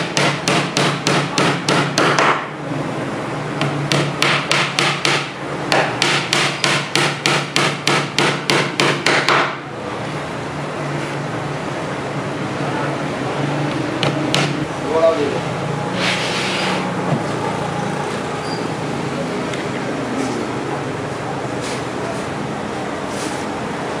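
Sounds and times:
hammer tapping nail into wood: 0:14.0 - 0:14.6.

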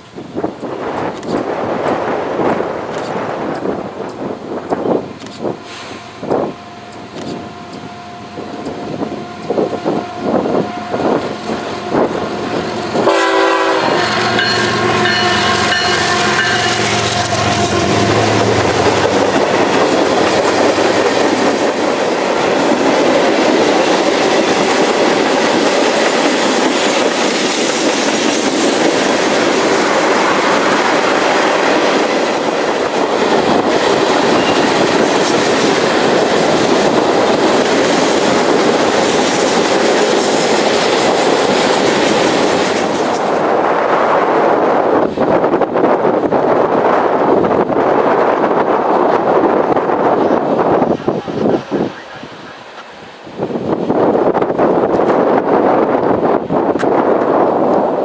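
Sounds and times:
freight cars rumbling and rattling: 0:00.0 - 0:13.2, 0:13.8 - 0:58.0
diesel locomotive engines: 0:00.0 - 0:58.0
train horn blare: 0:05.7 - 0:19.3.

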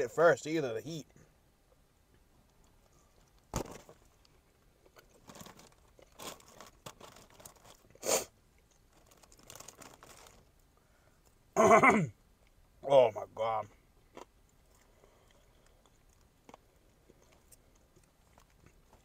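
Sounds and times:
crunching fried chicken: 0:03.3 - 0:10.6, 0:14.0 - 0:19.0.

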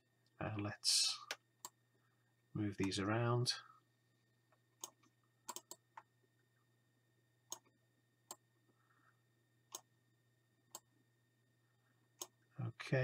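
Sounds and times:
low steady hum: 0:00.0 - 0:13.0
computer mouse clicks: 0:04.8 - 0:06.1, 0:07.5 - 0:07.7.

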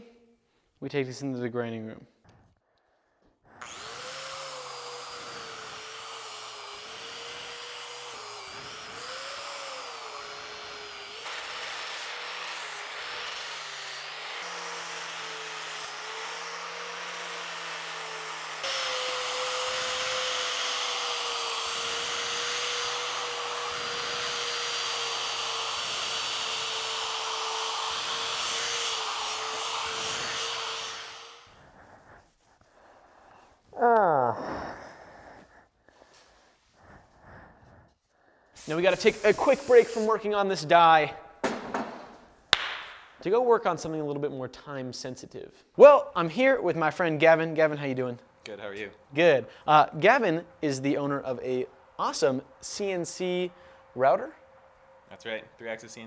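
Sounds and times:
angle grinder grinding steel: 0:03.5 - 0:32.6, 0:38.6 - 0:40.2.

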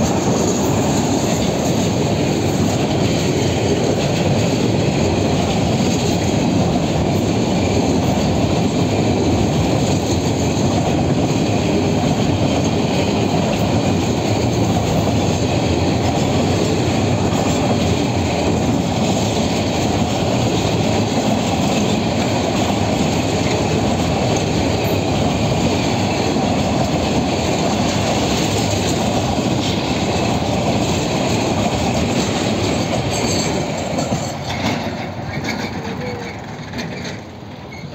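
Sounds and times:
train wheels rumbling on rails: 0:00.0 - 0:37.9.

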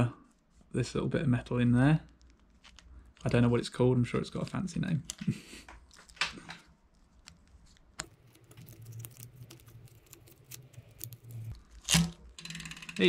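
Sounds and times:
bicycle chain clicks and rattles: 0:12.3 - 0:13.0.

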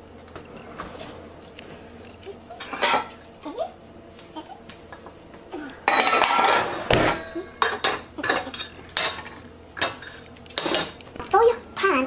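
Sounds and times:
pots and pans clattering: 0:02.6 - 0:03.2, 0:05.8 - 0:11.0
metal pot clanking on stove grate: 0:05.9 - 0:11.0.

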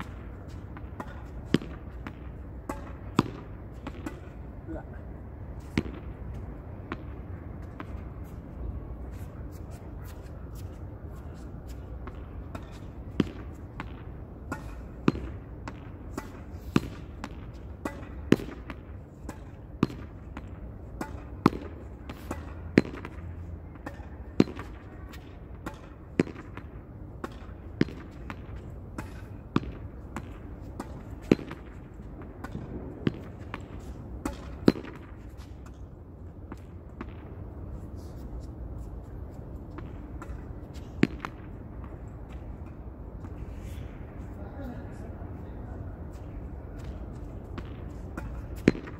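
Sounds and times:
ball bouncing: 0:00.0 - 0:04.4, 0:12.0 - 0:35.8, 0:36.4 - 0:37.5, 0:46.8 - 0:48.9
low background noise: 0:00.0 - 0:48.9.

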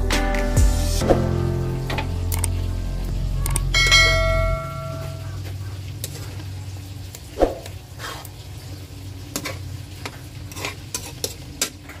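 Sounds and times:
low steady hum: 0:01.3 - 0:10.0
metal spatula scraping pot: 0:10.4 - 0:12.0.

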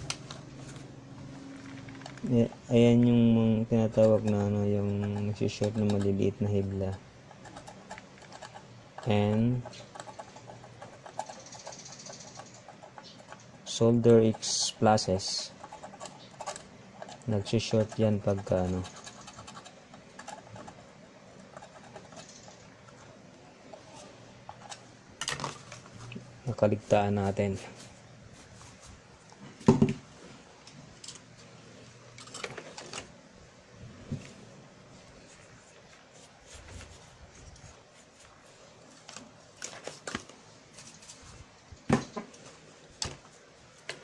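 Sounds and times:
handling noise: 0:00.0 - 0:31.4
tweezer scraping circuit board: 0:01.4 - 0:24.9
knock: 0:29.7 - 0:30.0.

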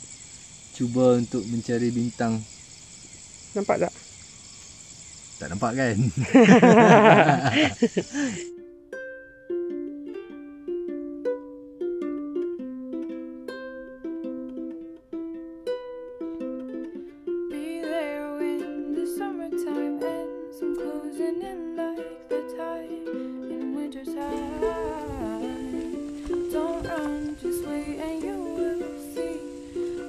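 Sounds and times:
music accompaniment: 0:08.2 - 0:30.0
plucked-note melody: 0:08.5 - 0:30.0.

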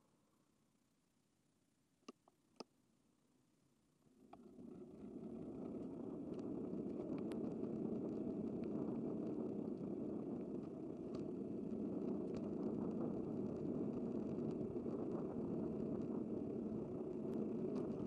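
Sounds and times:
faint ticks: 0:04.3 - 0:18.0
road and wind noise: 0:05.0 - 0:18.0.

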